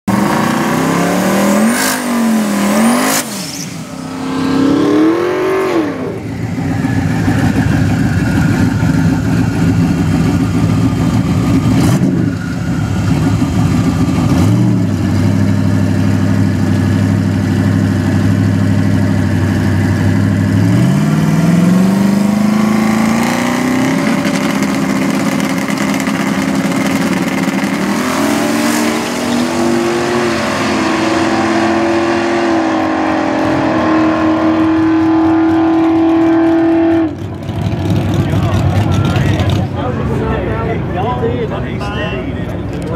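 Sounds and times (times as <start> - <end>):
drag car engine revving: 0.1 - 41.8.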